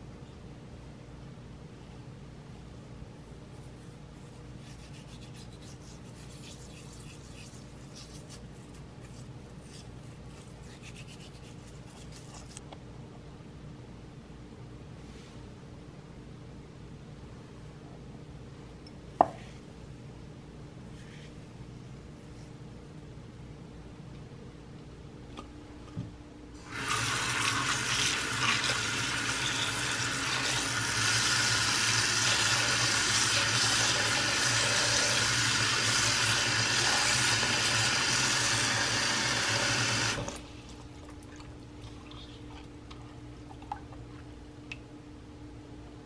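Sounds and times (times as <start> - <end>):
quiet room hum: 0.0 - 46.0
faucet water running into sink: 26.6 - 40.4.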